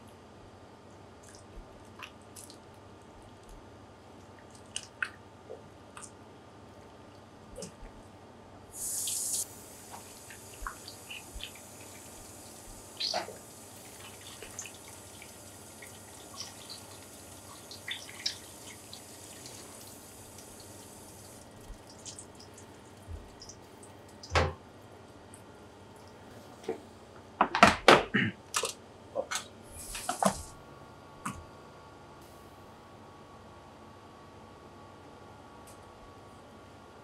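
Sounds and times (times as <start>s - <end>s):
tap water running and splashing: 8.8s - 23.6s, 30.0s - 30.5s
small drips: 8.8s - 24.3s.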